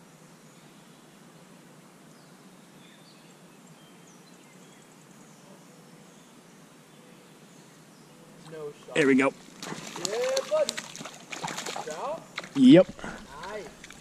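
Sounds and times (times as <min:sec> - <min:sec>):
steady low hiss: 0:00.0 - 0:14.0.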